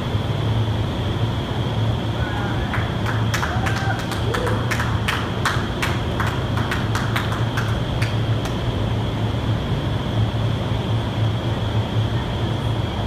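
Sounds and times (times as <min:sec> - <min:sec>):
low hum: 0:00.0 - 0:13.0
wind tunnel airflow roar: 0:00.0 - 0:13.0.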